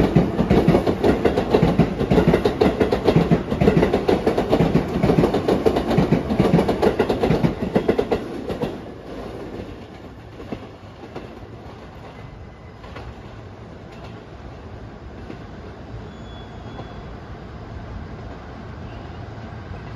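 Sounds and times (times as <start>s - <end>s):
wheels clacking over rail joints: 0.0s - 12.2s
electric trains passing: 0.0s - 19.9s.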